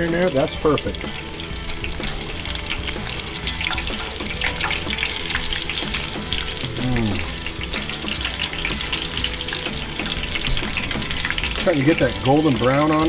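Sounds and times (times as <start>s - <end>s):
food deep-frying in oil: 0.0s - 13.0s
metal tongs stirring: 7.4s - 13.0s.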